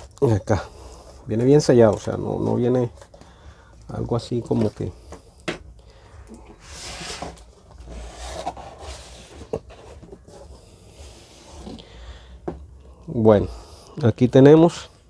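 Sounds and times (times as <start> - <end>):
cardboard rubbing and scraping: 6.6 - 11.8.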